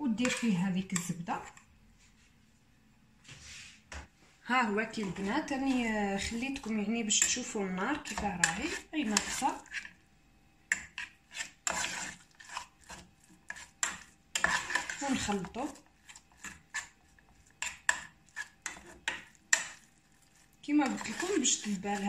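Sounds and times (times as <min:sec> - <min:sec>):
metal spoon scraping saucepan: 0:00.0 - 0:01.6, 0:04.8 - 0:10.0, 0:10.7 - 0:17.0, 0:17.6 - 0:19.9, 0:20.7 - 0:22.0.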